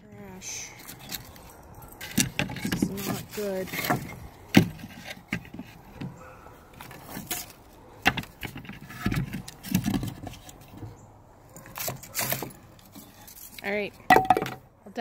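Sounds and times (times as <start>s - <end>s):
wooden boards knocking and scraping: 2.0s - 11.0s, 14.1s - 14.6s.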